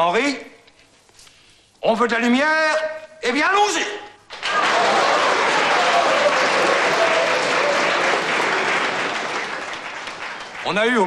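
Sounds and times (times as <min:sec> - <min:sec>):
crowd applauding: 0:04.3 - 0:11.0.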